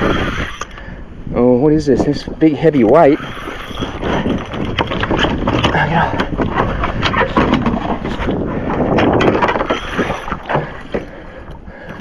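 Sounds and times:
wind buffeting microphone: 0.0s - 12.0s
water sloshing against kayak: 3.2s - 12.0s.

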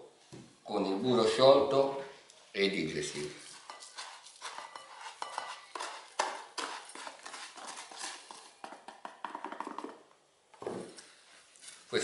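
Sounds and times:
spatula scraping and tapping plastic tub: 3.4s - 10.1s.

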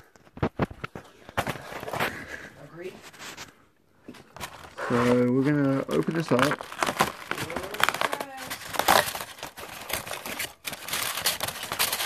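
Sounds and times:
cardboard tearing and crinkling: 4.1s - 12.0s.

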